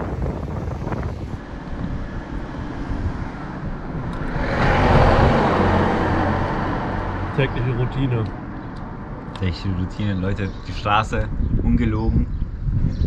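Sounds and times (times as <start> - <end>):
low engine hum: 0.0 - 13.0
vehicle driving past: 0.9 - 9.1.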